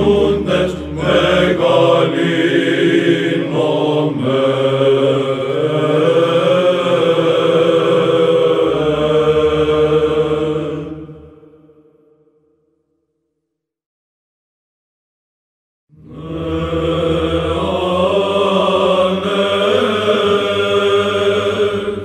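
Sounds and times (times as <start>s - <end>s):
choir chanting: 0.0s - 12.2s, 15.9s - 22.0s
low held drone: 16.0s - 22.0s.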